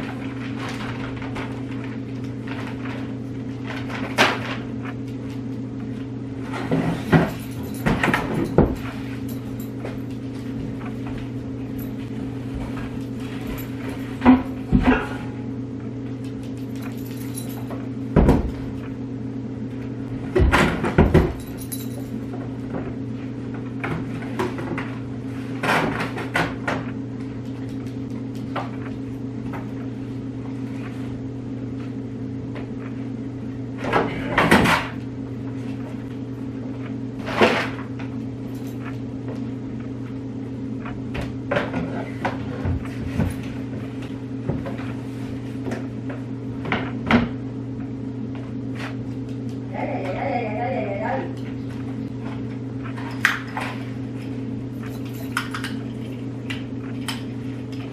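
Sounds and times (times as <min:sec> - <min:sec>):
steady low hum: 0:00.0 - 0:57.9
knocks and clatters of objects: 0:06.5 - 0:11.3.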